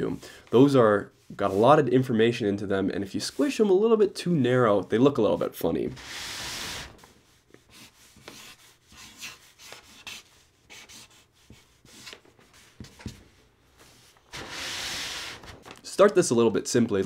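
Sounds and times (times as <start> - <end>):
marker scratching on paper: 6.0 - 13.2.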